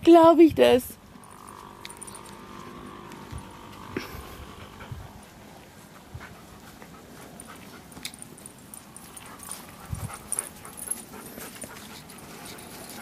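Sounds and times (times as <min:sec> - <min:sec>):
dogs jostling against microphone: 0:06.7 - 0:13.0.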